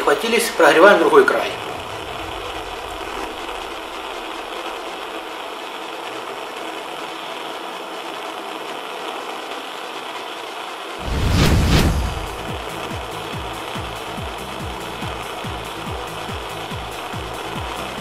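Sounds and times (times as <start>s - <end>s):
gas burner flame hissing: 0.0s - 18.0s
deep rumble: 0.1s - 5.6s, 11.0s - 13.3s.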